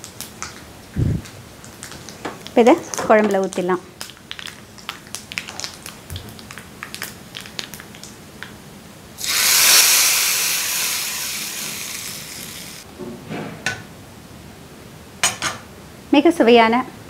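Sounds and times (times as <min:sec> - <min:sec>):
hot oil sizzling: 0:00.0 - 0:08.4, 0:09.2 - 0:12.9.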